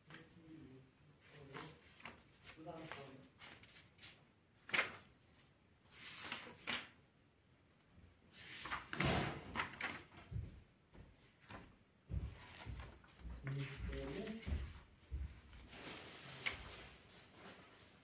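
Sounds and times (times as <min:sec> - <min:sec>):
paper rustling: 0:01.2 - 0:07.0, 0:08.3 - 0:10.4, 0:12.4 - 0:18.0.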